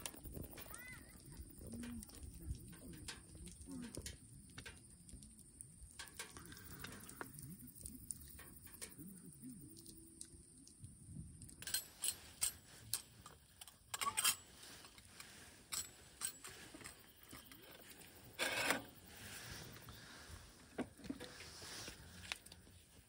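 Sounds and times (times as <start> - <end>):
metal cookware clinking: 13.7 - 14.5.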